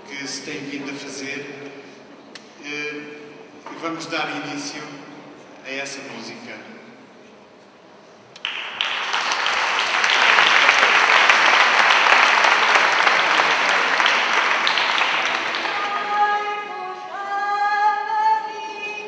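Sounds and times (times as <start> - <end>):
audience applause: 8.4 - 16.6
high singing voice: 15.3 - 19.0.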